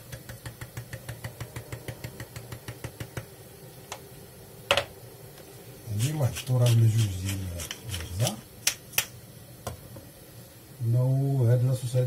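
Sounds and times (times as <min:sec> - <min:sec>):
spice tin shaken with light taps: 0:06.0 - 0:09.1.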